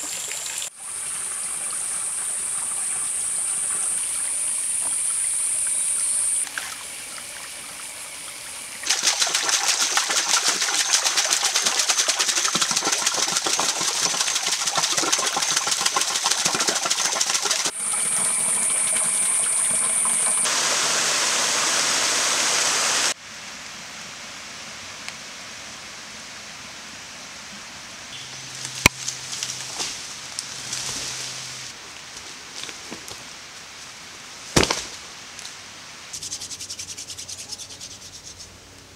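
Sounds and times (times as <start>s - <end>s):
water splashing into pool: 0.0s - 5.7s, 6.4s - 23.2s
forest ambience: 0.0s - 38.9s.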